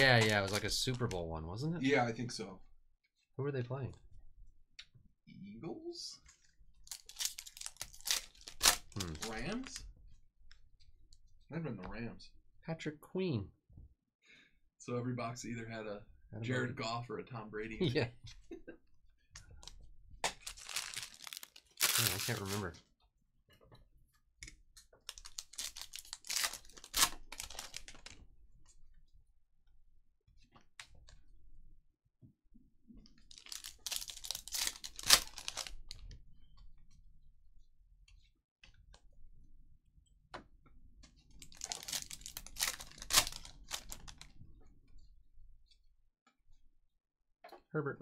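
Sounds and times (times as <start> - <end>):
foil wrappers tearing and crinkling: 0.0 - 0.8, 6.9 - 9.8, 20.3 - 22.7, 25.0 - 28.1, 33.3 - 35.9, 41.4 - 44.2.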